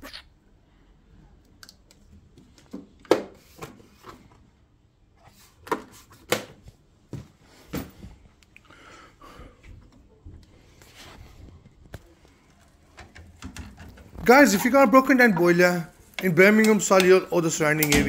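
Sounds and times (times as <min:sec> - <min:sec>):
clicks and knocks on a pump: 0:13.0 - 0:14.2.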